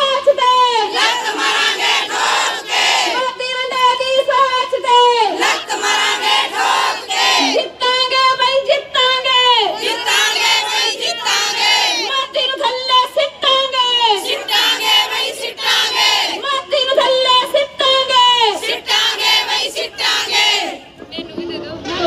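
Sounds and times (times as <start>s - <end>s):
women chanting a slogan: 0.0s - 20.9s.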